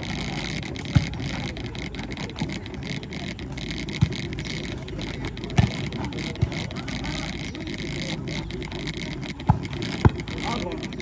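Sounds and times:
volleyball thumps: 0:00.2 - 0:01.5, 0:03.4 - 0:07.3, 0:09.4 - 0:10.8.

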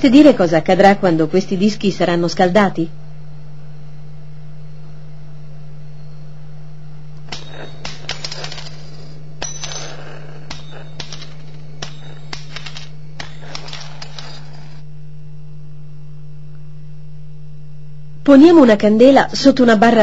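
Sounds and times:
low hum: 0:00.0 - 0:20.0
metal discs clicking and clinking: 0:07.3 - 0:14.8.

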